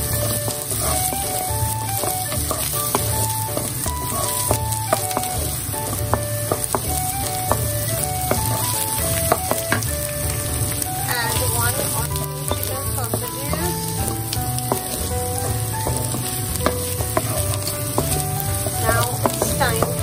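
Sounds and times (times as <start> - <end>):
food sizzling in a frying pan: 0.0 - 20.0
simple background tune: 0.0 - 20.0
wooden spatula scraping a pan: 0.0 - 20.0.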